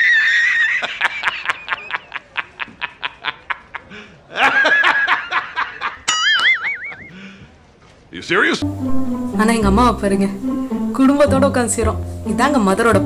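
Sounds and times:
man laughing high-pitched: 0.0s - 7.2s
wavering high tone: 6.1s - 7.2s.

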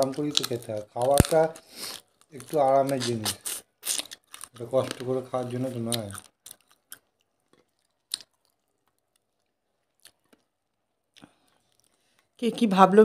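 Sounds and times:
wet chewing clicks: 0.0s - 12.3s.

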